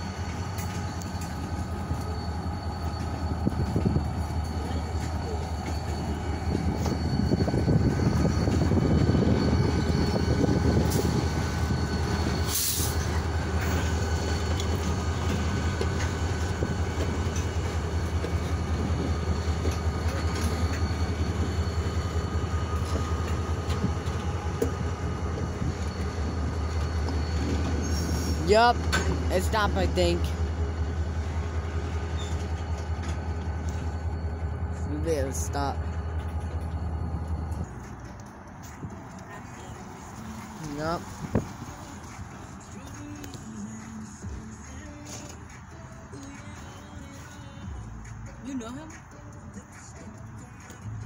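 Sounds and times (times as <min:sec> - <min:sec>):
thin steady squeal: 0:00.0 - 0:28.5, 0:29.4 - 0:37.7
diesel locomotive engine: 0:00.0 - 0:51.0
freight train wheels rumbling: 0:00.0 - 0:51.0.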